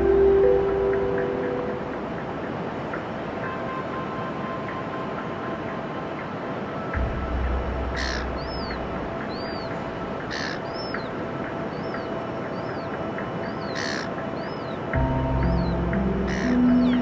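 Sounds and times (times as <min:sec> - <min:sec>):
harsh raspy bird call: 0:08.0 - 0:09.7, 0:10.3 - 0:11.1, 0:13.6 - 0:14.2, 0:16.2 - 0:17.0.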